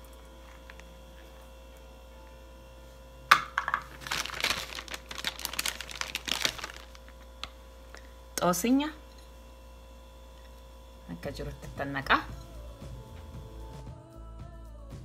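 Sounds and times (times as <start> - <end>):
rapid crinkling and rustling: 3.9 - 7.2.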